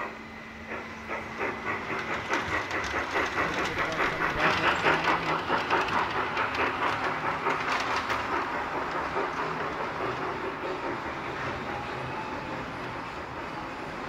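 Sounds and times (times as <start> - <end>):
model train rhythmic clicking: 0.0 - 14.0.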